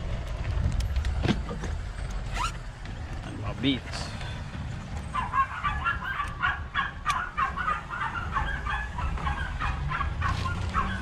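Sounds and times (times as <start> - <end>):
birds squawking: 5.1 - 11.0.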